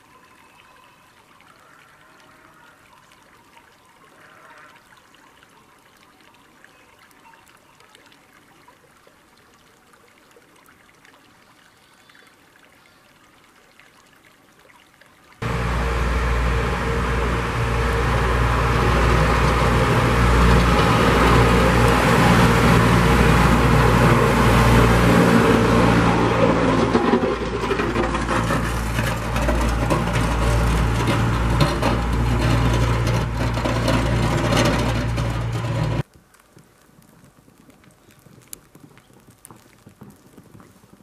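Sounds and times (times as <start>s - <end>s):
tractor engine running: 15.4s - 36.0s.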